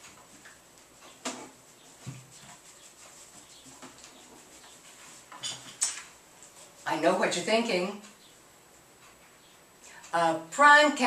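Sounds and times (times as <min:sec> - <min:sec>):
light taps and rustles: 0:00.0 - 0:06.8.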